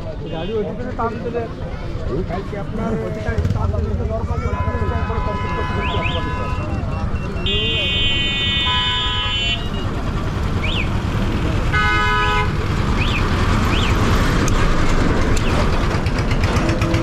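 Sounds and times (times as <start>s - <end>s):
road traffic passing: 0.0s - 17.0s
truck engine rumbling: 1.2s - 17.0s
vehicle horn honk: 4.4s - 9.9s, 11.7s - 12.6s.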